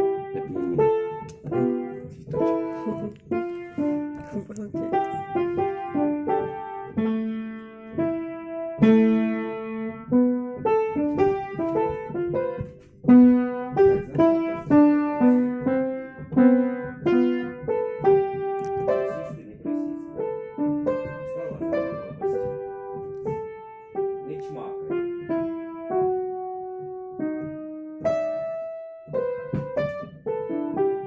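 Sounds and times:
child playing piano: 0.0 - 31.0.

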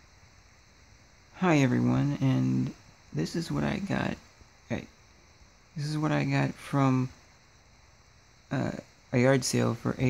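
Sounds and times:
man talking: 1.4 - 4.9, 5.8 - 7.2, 8.5 - 10.0.

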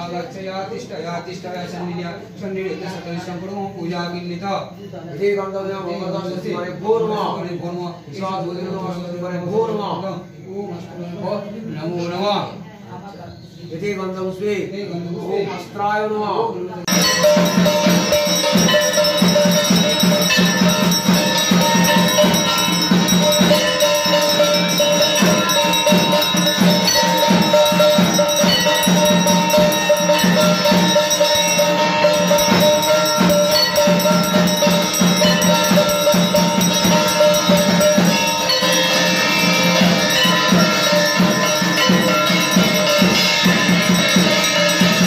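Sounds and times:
drums beating fast rhythm: 16.8 - 45.0
bells ringing: 16.9 - 45.0.

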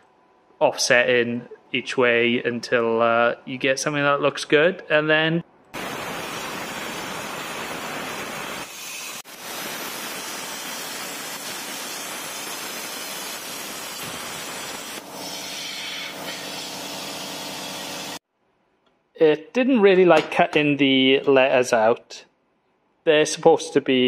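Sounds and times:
plasma cutter hissing: 5.8 - 18.2.

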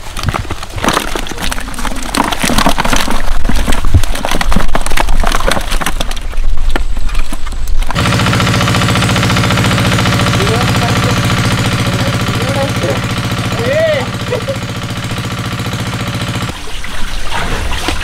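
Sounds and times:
fish thrashing in plastic bucket: 0.0 - 10.6
small engine droning: 7.9 - 16.5.

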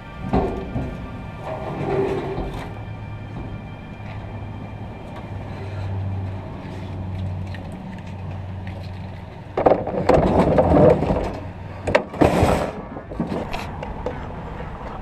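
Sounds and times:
clattering in metal dumpster: 0.0 - 7.7, 9.5 - 13.8
low mechanical hum: 0.0 - 15.0.

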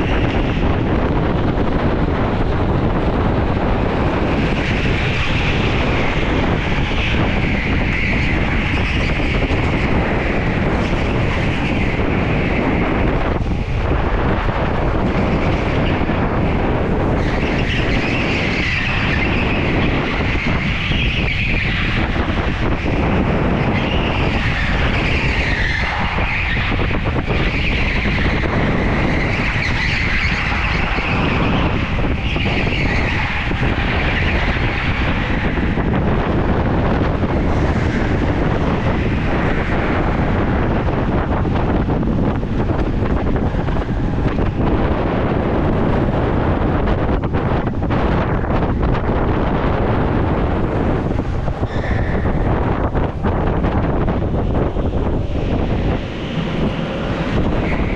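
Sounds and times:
go-kart engine rushing: 0.0 - 57.9
wind buffeting microphone: 0.0 - 57.9
tyres squealing on concrete: 4.2 - 13.8, 15.0 - 41.6, 50.0 - 57.9.

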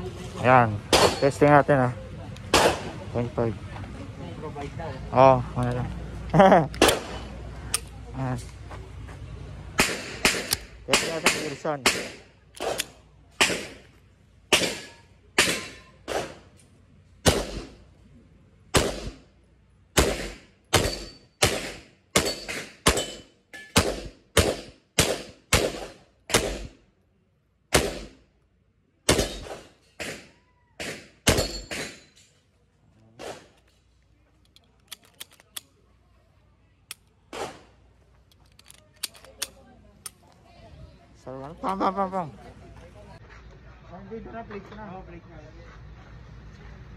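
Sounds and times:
pistol shots: 0.9 - 1.3, 2.5 - 2.9, 9.8 - 13.8, 14.5 - 16.4, 17.2 - 17.8, 18.7 - 19.2, 20.0 - 26.8, 27.7 - 28.2, 29.1 - 32.0.

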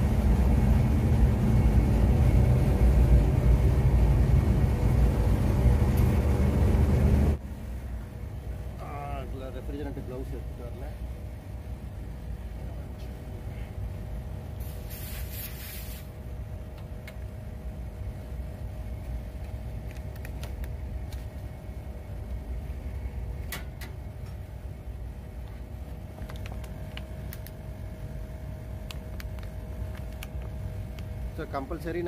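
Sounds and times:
air conditioner unit humming: 0.0 - 32.0
short hiss: 14.6 - 16.1.

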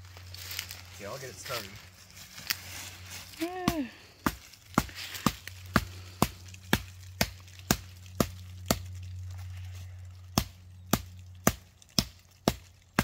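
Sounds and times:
hatchet chopping tree trunk: 3.5 - 9.1, 10.2 - 13.0.

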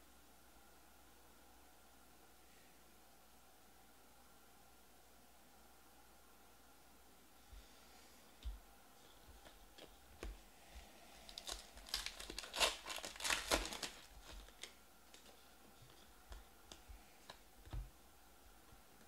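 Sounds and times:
foil pack tearing and crinkling: 11.2 - 15.4.

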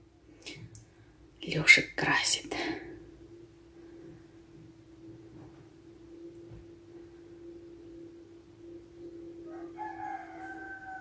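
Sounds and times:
faint steady hum: 0.0 - 11.0
rooster crowing: 9.4 - 11.0.

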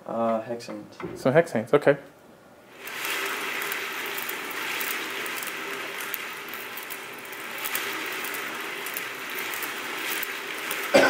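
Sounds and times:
whirring rush of spinning turntable: 2.7 - 11.0.

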